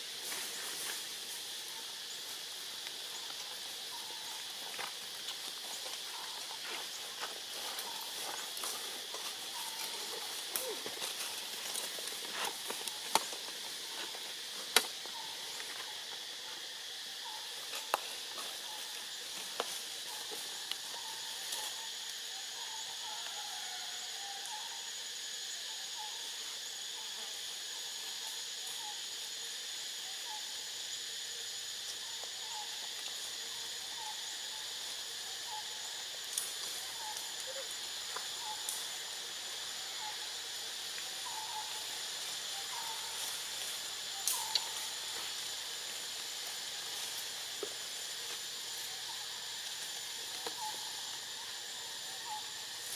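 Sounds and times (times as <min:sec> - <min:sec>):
high-pitched insect chorus: 0:00.0 - 0:52.9
clicks and rustles in dry leaves: 0:02.8 - 0:15.9.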